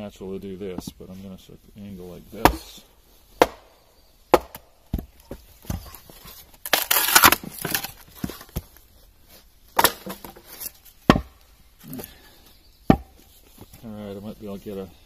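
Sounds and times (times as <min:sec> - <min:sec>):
wood splitting along grain: 0:06.6 - 0:08.4
sharp knocks on wood: 0:11.1 - 0:11.3, 0:12.9 - 0:13.2.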